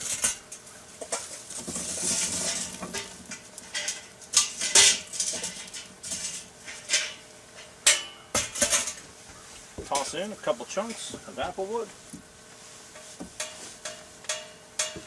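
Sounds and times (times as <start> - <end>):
charcoal pouring rush: 0.0 - 6.9
coals clattering on metal: 0.0 - 9.2, 9.8 - 15.0.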